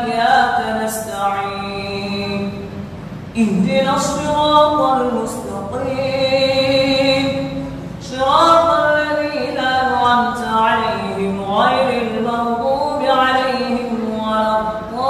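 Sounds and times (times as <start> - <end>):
man chanting through a microphone: 3.4 - 15.0.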